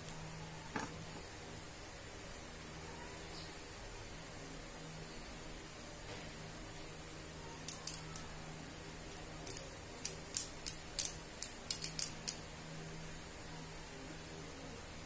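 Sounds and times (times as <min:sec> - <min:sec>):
metallic clicks of small steel parts: 0:07.6 - 0:08.3, 0:09.1 - 0:12.4.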